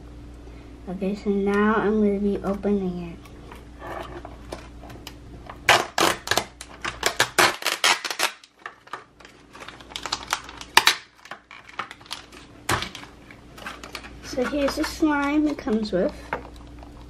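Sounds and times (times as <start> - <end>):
plastic packaging crinkling: 3.4 - 17.0
plastic packaging clicks: 4.5 - 16.8.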